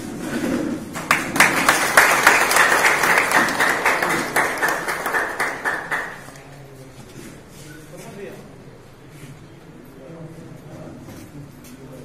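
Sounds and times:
people clapping: 0:00.9 - 0:06.7.

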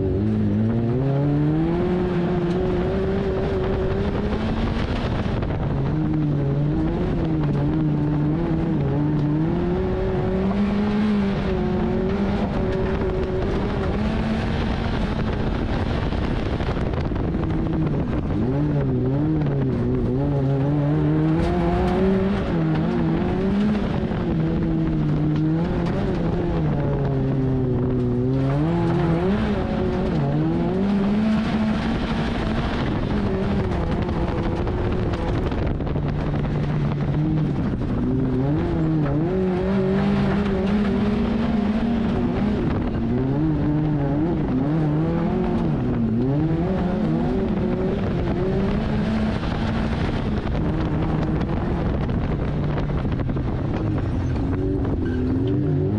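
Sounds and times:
car engine revving: 0:00.0 - 0:55.9.

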